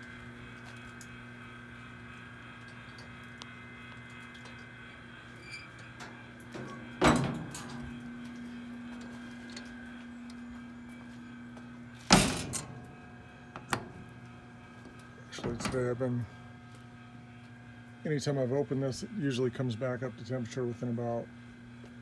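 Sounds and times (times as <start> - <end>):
steady hum: 0.0 - 22.0
heavy steel door clanging shut: 6.0 - 8.0, 12.1 - 12.9.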